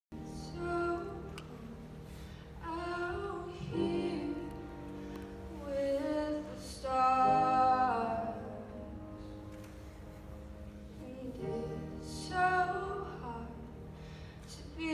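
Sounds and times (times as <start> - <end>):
grand piano chords: 0.1 - 14.9
woman singing: 0.2 - 8.9, 10.9 - 13.7, 14.5 - 14.9.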